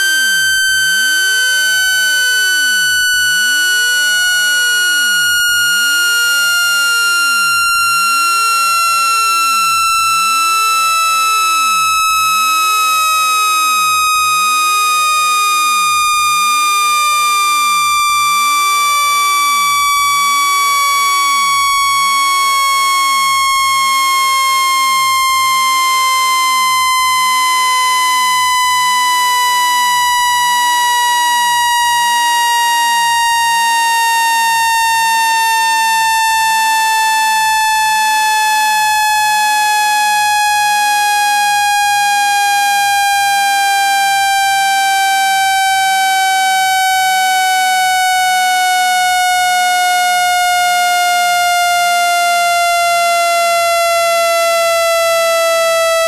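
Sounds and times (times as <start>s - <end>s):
buzzy electronic tone falling: 0.0s - 40.3s.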